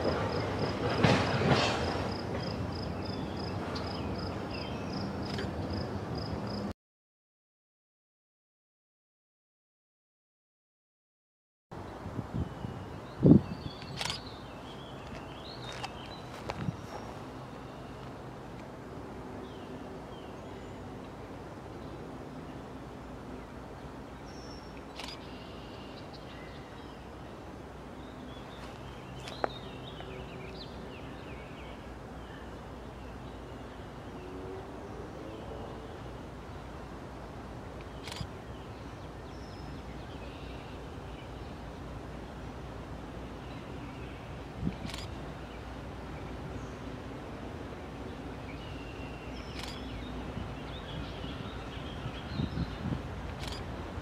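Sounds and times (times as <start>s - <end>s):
small birds chirping: 48.1s - 53.6s.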